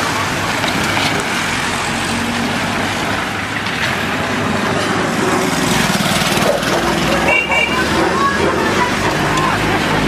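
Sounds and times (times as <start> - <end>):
vehicle engine and road noise: 0.0 - 10.0
motorcycle engine passing: 4.4 - 10.0.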